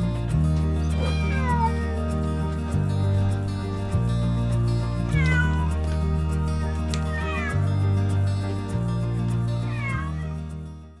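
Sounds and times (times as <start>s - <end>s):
music of low sustained chords: 0.0s - 11.0s
cat meowing: 0.9s - 1.9s, 5.1s - 5.8s, 7.0s - 7.6s, 9.7s - 10.3s.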